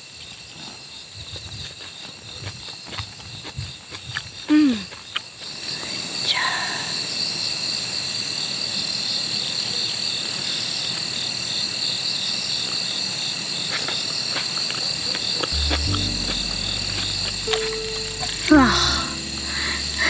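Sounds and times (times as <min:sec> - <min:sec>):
low background music: 0:15.6 - 0:20.0.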